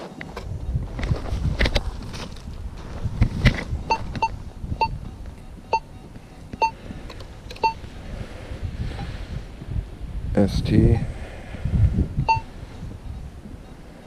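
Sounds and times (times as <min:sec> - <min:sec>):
metal detector beeps: 0:03.8 - 0:07.8, 0:12.2 - 0:14.0.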